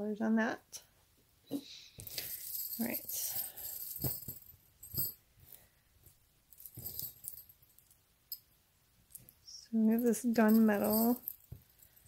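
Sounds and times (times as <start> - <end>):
metal chain links jingling: 2.1 - 5.2, 6.5 - 8.4, 9.9 - 12.0.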